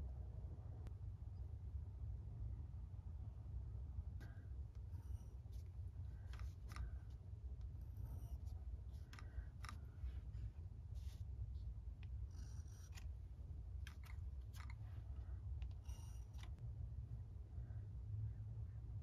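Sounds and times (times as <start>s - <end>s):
low steady hum: 0.0s - 19.0s
paintbrush scratching paper: 4.9s - 13.2s.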